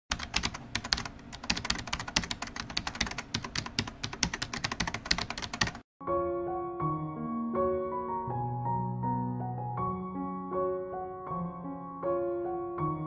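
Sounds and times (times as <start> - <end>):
rapid clicking: 0.1 - 5.8.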